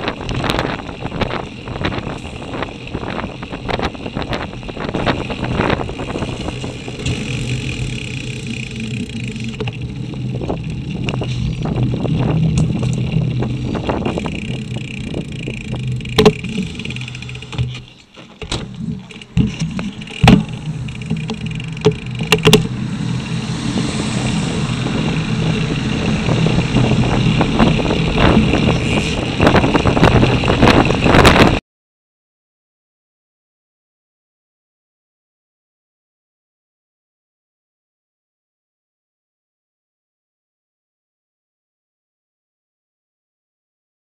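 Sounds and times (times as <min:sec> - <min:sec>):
wind rushing over microphone: 0:00.0 - 0:17.8, 0:18.6 - 0:31.6
bike rattling over bumps: 0:00.0 - 0:31.6
traffic engine hum: 0:00.0 - 0:31.6.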